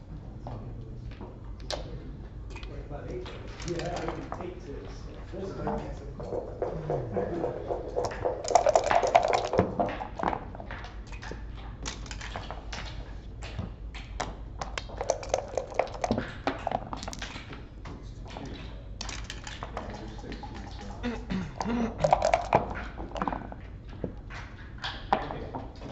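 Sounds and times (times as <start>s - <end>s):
checkers tapping on board: 6.2s - 10.4s
dice rolling: 7.8s - 10.3s, 14.8s - 16.2s.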